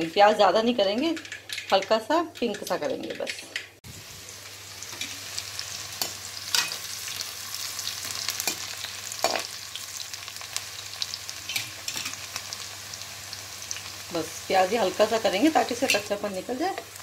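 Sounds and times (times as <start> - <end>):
onion sizzling in hot oil: 3.8 - 17.0.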